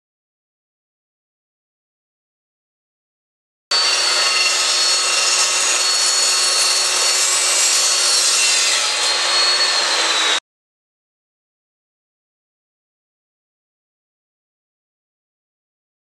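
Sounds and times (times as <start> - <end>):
chop saw cutting metal tube: 3.7 - 10.4.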